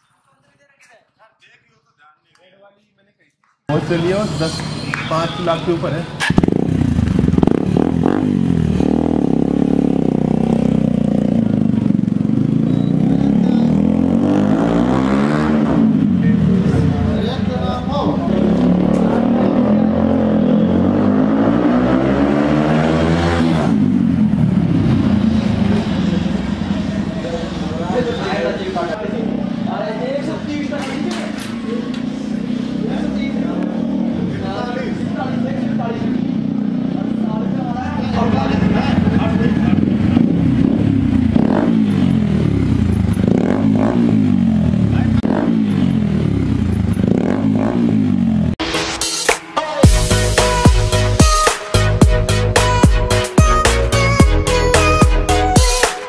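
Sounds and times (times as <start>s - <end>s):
motorcycle engine passing by: 6.0s - 48.6s.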